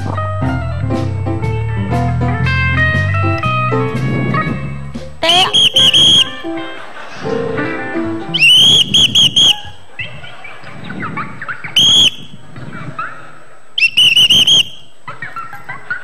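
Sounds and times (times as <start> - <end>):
shrill whistle blasts: 5.2 - 6.4, 8.3 - 10.0, 11.7 - 12.4, 13.8 - 15.0.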